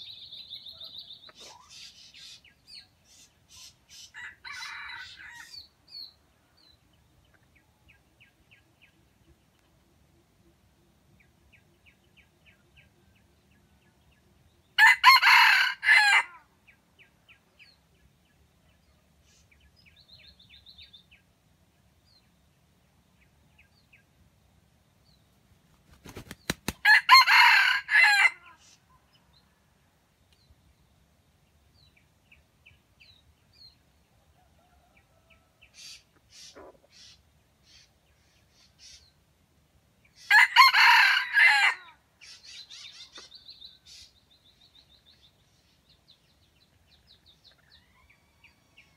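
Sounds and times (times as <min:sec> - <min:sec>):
rooster crowing: 0:04.2 - 0:05.6, 0:14.8 - 0:16.4, 0:26.8 - 0:28.6, 0:40.3 - 0:42.0
wings fluttering: 0:25.6 - 0:26.8.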